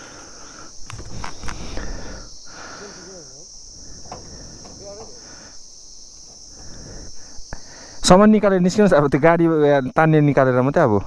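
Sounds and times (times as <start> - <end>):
distant voices calling out: 0.0 - 8.2
high-pitched insect drone: 0.0 - 11.0.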